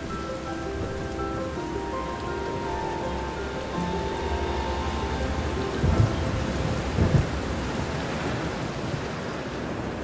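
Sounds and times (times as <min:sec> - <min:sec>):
steady rain: 0:00.0 - 0:10.0
low rumbling thunder: 0:03.8 - 0:08.9.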